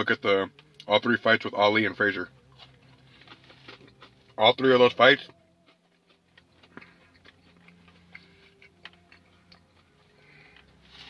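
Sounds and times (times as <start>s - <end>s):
person chewing food: 2.4s - 4.4s, 5.2s - 11.0s.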